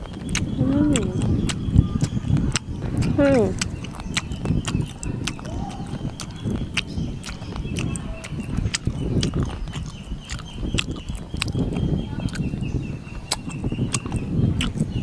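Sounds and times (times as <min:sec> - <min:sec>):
chewing with lip smacks: 0:00.0 - 0:15.0.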